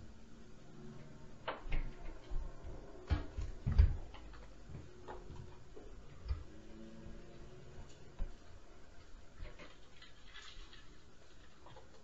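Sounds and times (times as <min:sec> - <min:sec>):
thumps through the ceiling: 0:01.4 - 0:05.4.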